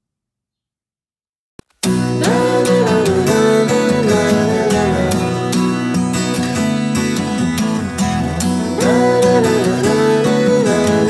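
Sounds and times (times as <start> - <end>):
strummed acoustic guitar: 1.8 - 11.0
gliding melody line: 2.2 - 7.0.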